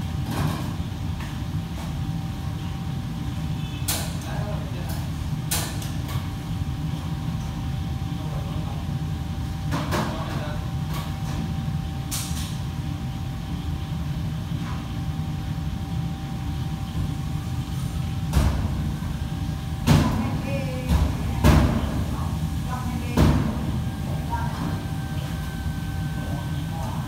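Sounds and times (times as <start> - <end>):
kitchen fans rumbling: 0.0 - 27.0
thin steady whine: 10.6 - 27.0.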